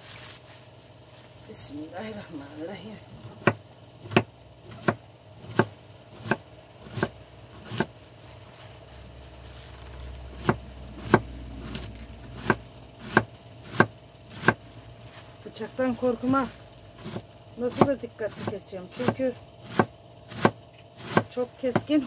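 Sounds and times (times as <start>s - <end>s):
knife chopping cabbage: 3.1s - 8.9s, 9.6s - 15.2s, 16.3s - 22.0s.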